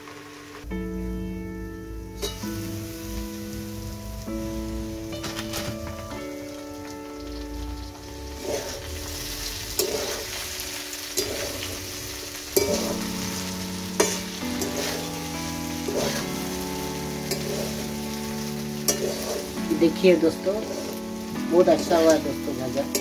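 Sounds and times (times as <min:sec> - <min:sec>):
vegetables sizzling in a wok: 0:00.0 - 0:23.0
metal spatula scraping a pan: 0:07.3 - 0:19.8, 0:20.4 - 0:21.4.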